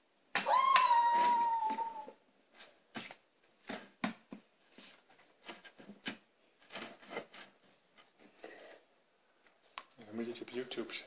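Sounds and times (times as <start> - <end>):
high-pitched call: 0.4 - 2.1.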